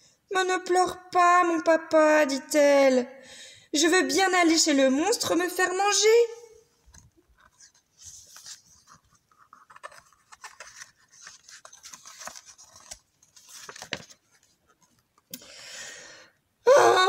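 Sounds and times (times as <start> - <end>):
book pages turning: 6.9 - 15.3.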